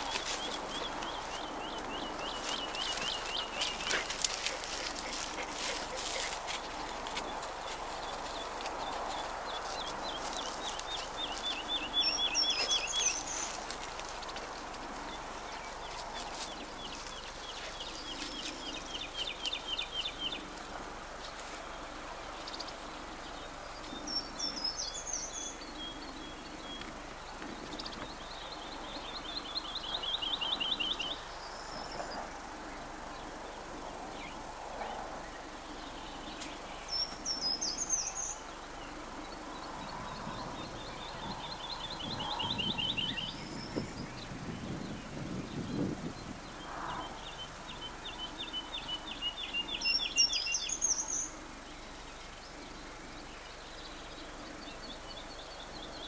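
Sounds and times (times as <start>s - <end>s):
songbird high twittering: 0.0s - 20.6s, 35.3s - 56.0s
songbird fast trill: 8.1s - 13.7s.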